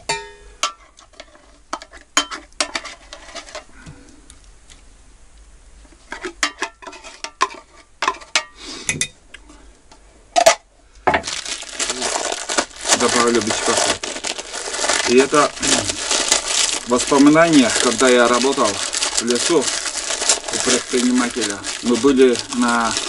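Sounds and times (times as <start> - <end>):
packaging crinkling: 11.2 - 23.0.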